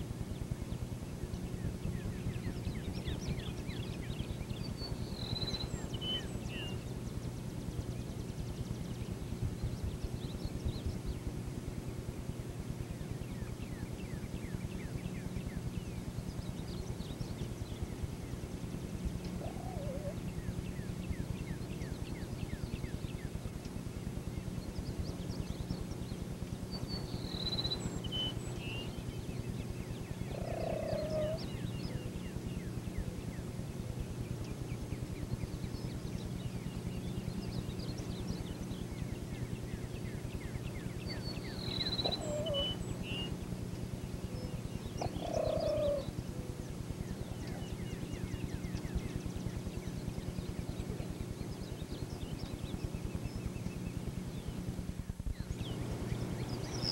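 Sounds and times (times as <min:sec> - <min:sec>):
steady low hum: 0:00.0 - 0:56.9
small bird chirping: 0:02.0 - 0:06.9, 0:19.1 - 0:23.8, 0:24.8 - 0:33.1, 0:35.4 - 0:54.6
turkeys giving low calls: 0:19.4 - 0:20.2, 0:30.3 - 0:31.5, 0:41.9 - 0:43.0, 0:45.0 - 0:46.6.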